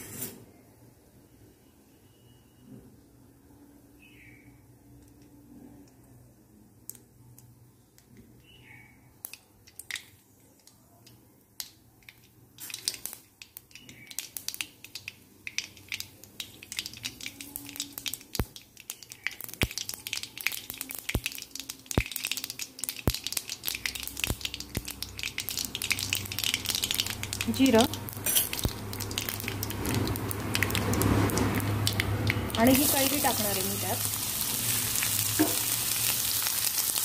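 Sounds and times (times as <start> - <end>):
mustard seeds popping in hot oil: 9.2 - 37.0.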